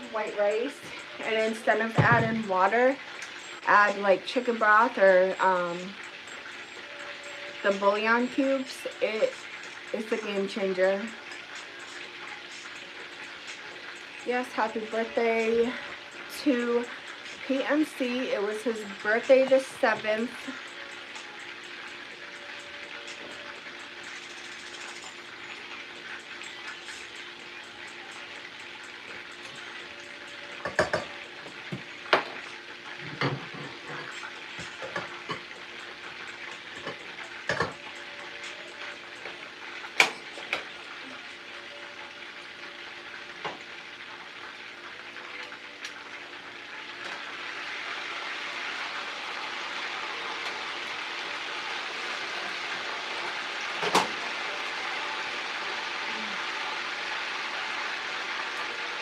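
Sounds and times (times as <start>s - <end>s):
chicken sizzling in a skillet: 0.0s - 59.0s
utensils clinking against pans: 24.1s - 27.1s, 30.5s - 41.2s, 53.7s - 54.3s.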